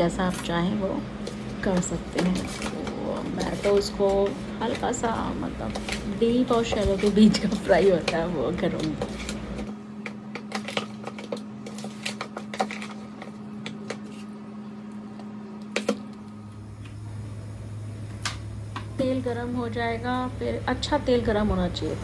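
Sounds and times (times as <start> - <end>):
metal spoon scraping a bowl: 2.2 - 9.7.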